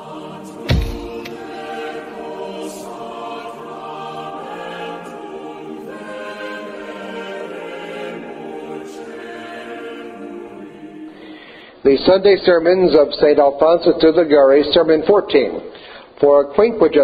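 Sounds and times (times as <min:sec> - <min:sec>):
choir singing sustained chords: 0:00.0 - 0:11.8
deep boom: 0:00.7 - 0:01.4.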